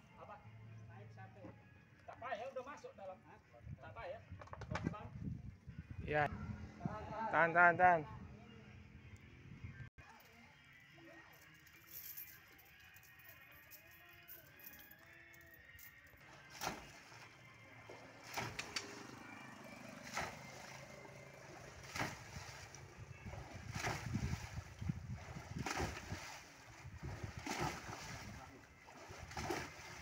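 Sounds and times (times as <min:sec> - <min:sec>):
water splashing and sloshing: 0:16.2 - 0:30.0.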